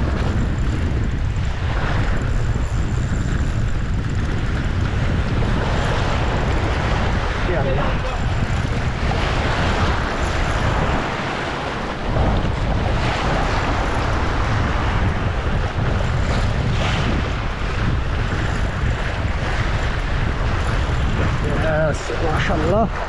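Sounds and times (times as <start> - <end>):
deep rumble: 0.0 - 23.0
sea water washing around boat: 0.0 - 23.0
wind buffeting microphone: 0.0 - 23.0.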